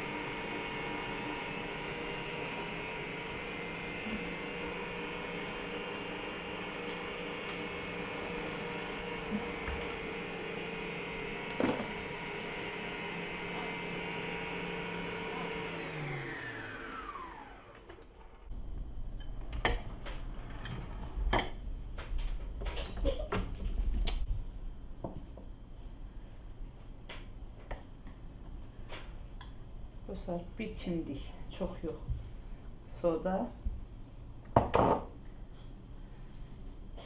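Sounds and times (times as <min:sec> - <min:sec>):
stand mixer whisking: 0:00.0 - 0:18.0.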